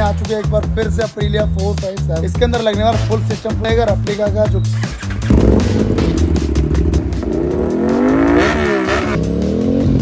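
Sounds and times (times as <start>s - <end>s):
motorcycle engine revving: 4.8s - 10.0s.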